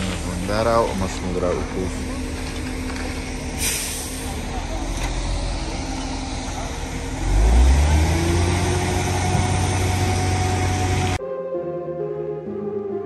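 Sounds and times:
engine revving: 0:01.1 - 0:11.2.

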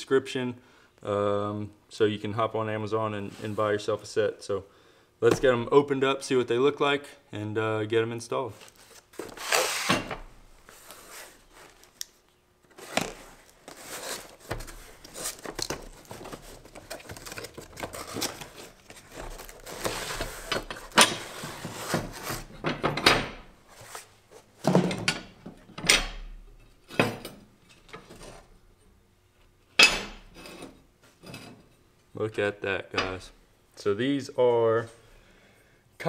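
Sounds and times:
cardboard box rustling: 0:12.7 - 0:20.6.

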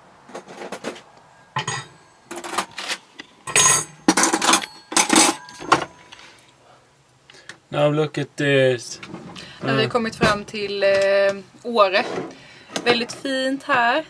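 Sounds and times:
kitchenware clattering: 0:01.6 - 0:06.1.

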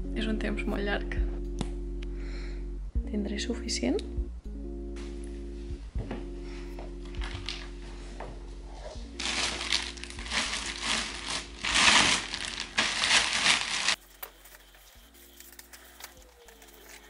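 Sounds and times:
quiet background music: 0:00.0 - 0:17.0
plastic bag crinkling: 0:07.1 - 0:07.7, 0:09.2 - 0:17.0.

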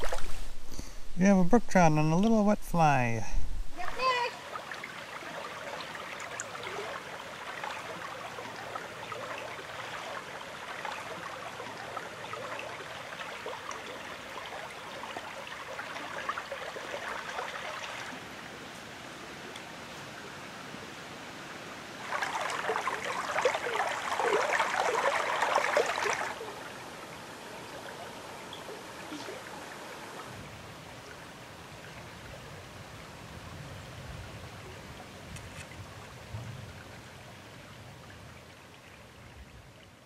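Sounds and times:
water splashing: 0:00.0 - 0:20.0, 0:21.9 - 0:31.2
river water rushing over gravel: 0:00.0 - 0:33.4.

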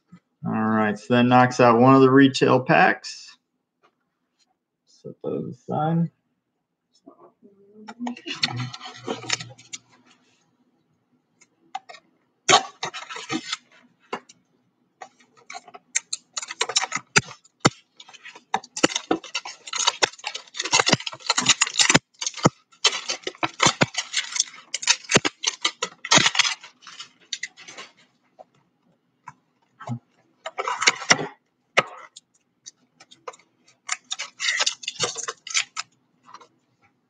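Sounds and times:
plastic wrapping crinkling and tearing: 0:08.1 - 0:09.9, 0:12.5 - 0:13.8, 0:15.0 - 0:28.1, 0:33.0 - 0:36.4.

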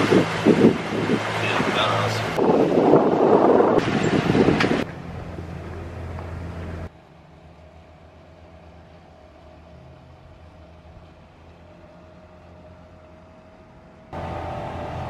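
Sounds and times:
wind noise on microphone: 0:00.0 - 0:05.6
low engine hum: 0:00.0 - 0:15.0.

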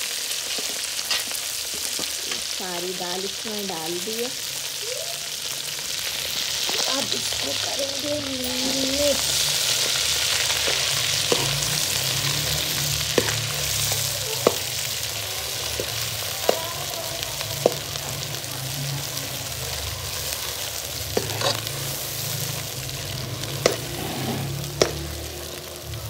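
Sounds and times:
paste sizzling in ghee: 0:00.0 - 0:26.0
spoon scraping pan: 0:08.4 - 0:16.6, 0:19.5 - 0:25.0.

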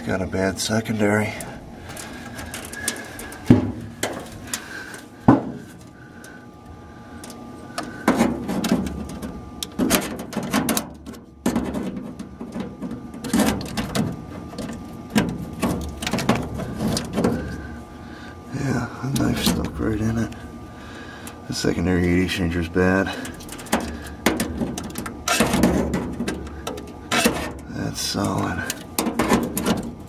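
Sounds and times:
knife scraping sheet steel: 0:27.1 - 0:27.6.

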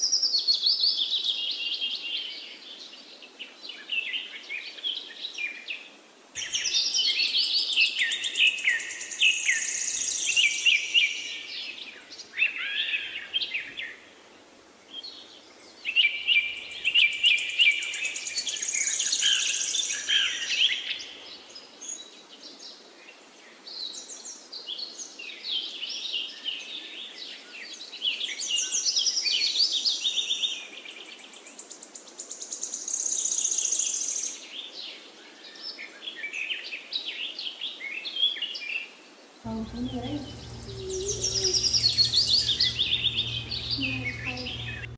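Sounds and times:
birds chirping and trilling: 0:39.5 - 0:44.9.

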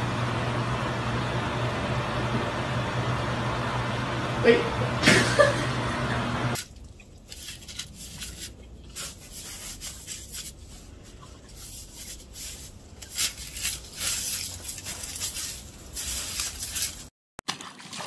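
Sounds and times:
dog rubbing through snow: 0:07.4 - 0:17.1.

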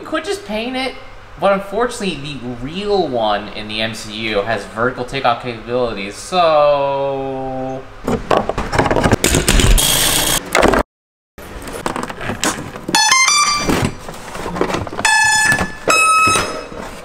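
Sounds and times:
electronic beeps rising in pitch: 0:13.0 - 0:13.8.

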